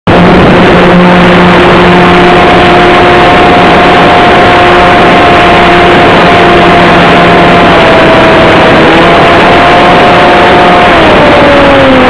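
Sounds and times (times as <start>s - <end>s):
heavy rush of air: 0.1s - 9.5s
model airplane motor and propeller: 0.1s - 12.0s.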